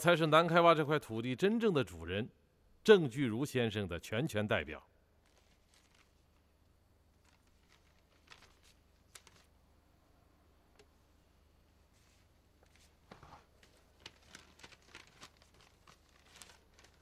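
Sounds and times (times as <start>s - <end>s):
paper rustling: 5.2s - 6.5s, 7.1s - 9.6s, 11.9s - 17.0s.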